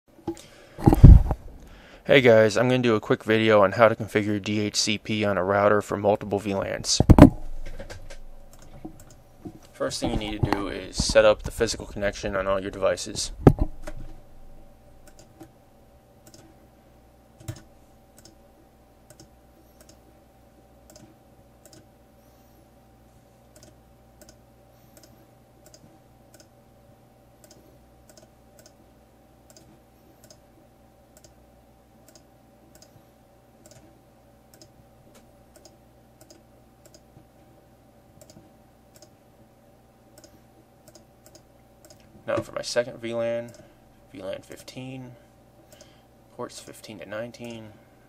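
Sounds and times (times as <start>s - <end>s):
steady electrical hum: 0.1s - 48.0s
computer mouse clicks: 7.2s - 9.2s, 15.0s - 15.5s, 16.2s - 16.5s, 17.4s - 18.4s, 19.1s - 20.0s, 20.9s - 21.9s, 23.5s - 26.5s, 27.4s - 28.8s, 29.5s - 30.4s, 31.2s - 31.4s, 32.1s - 33.0s, 33.6s - 33.9s, 34.5s - 37.2s, 38.2s - 39.2s, 40.2s - 42.1s, 45.7s - 46.0s.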